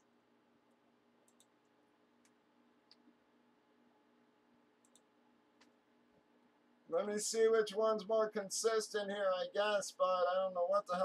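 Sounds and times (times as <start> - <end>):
faint low hum: 0.0 - 11.0
computer mouse clicks: 0.7 - 3.2, 4.8 - 5.8.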